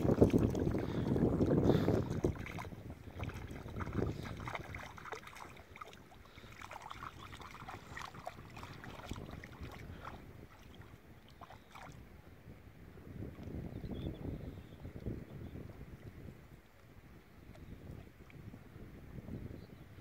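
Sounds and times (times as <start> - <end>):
dog wading through water: 0.0 - 12.0.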